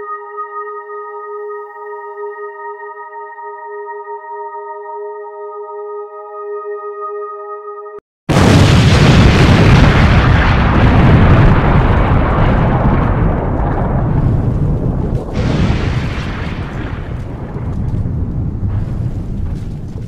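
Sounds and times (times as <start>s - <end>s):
deep explosion blast: 8.3s - 20.0s.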